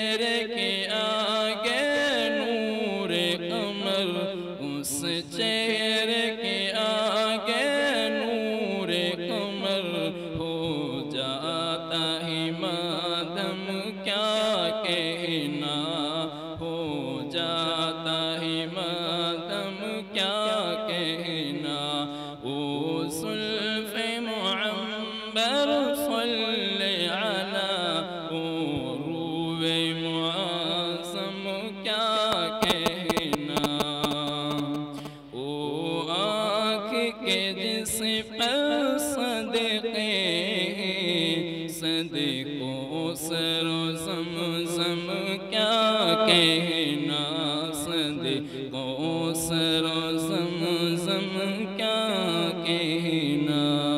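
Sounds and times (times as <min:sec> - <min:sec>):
man chanting unaccompanied: 0:00.0 - 0:53.9.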